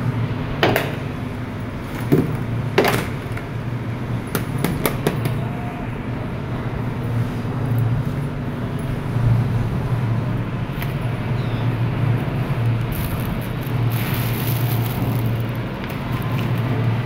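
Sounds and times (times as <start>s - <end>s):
steady low hum: 0.0s - 17.0s
plastic balls clacking together: 12.9s - 17.0s.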